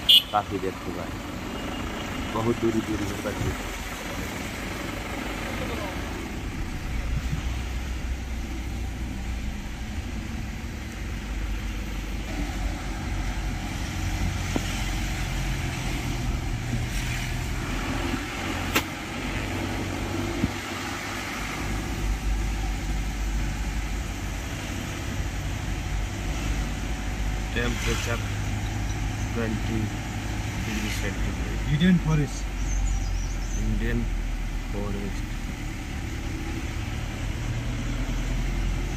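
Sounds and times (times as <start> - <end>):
car engine and road noise: 0.0 - 38.9
sharp click: 18.7 - 18.9.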